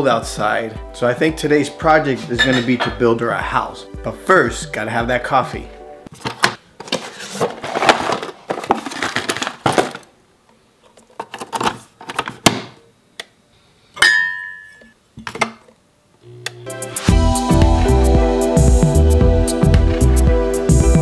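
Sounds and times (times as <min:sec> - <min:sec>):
short ringing clink: 0:14.0 - 0:15.0.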